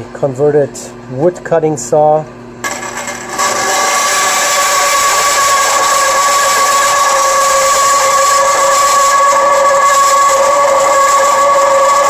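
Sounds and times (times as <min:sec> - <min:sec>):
bandsaw grinding through steel: 0:02.6 - 0:12.0.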